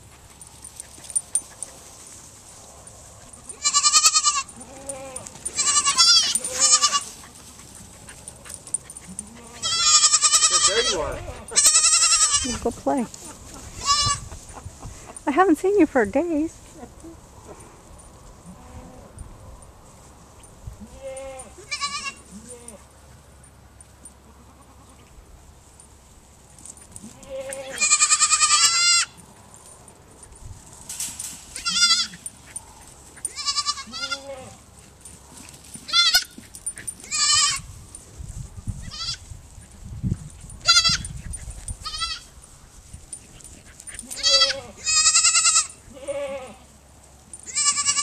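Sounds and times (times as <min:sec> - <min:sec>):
goat kids bleating: 0:03.2 - 0:14.5, 0:20.8 - 0:22.9, 0:24.2 - 0:25.2, 0:27.0 - 0:29.2, 0:31.4 - 0:34.7, 0:35.8 - 0:37.8, 0:38.8 - 0:39.3, 0:40.6 - 0:42.4, 0:43.6 - 0:46.8, 0:47.4 - 0:48.0.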